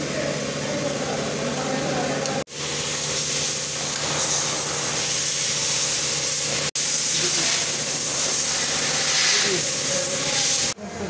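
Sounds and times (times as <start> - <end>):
steady hissing noise: 2.7 - 10.8.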